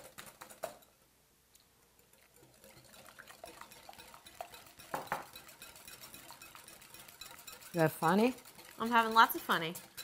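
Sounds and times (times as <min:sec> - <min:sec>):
milk pouring into bowl: 0:02.1 - 0:08.8.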